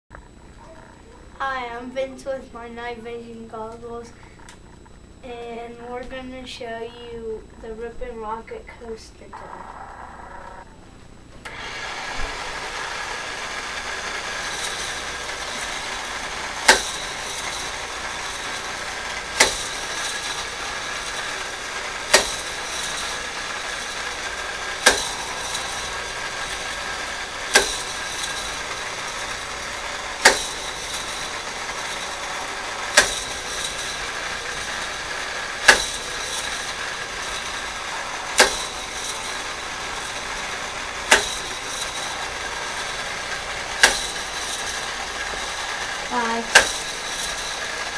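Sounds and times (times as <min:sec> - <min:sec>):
toy coaster lift motor whirring: 0:11.4 - 0:47.9
sharp plastic clack: 0:43.8 - 0:44.2, 0:46.5 - 0:46.8.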